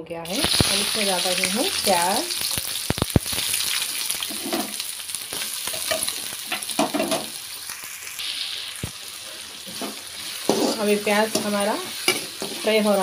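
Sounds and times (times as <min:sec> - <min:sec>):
onions sizzling in oil: 0:00.3 - 0:13.0
metal spoon scraping pan: 0:09.7 - 0:13.0.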